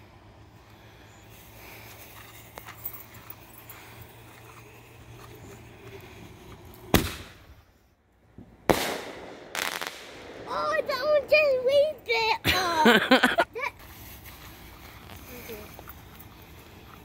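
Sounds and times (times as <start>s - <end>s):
firework shell bursting: 6.7s - 7.6s, 8.7s - 12.4s
firework launch bang: 6.9s - 7.6s, 8.7s - 11.8s.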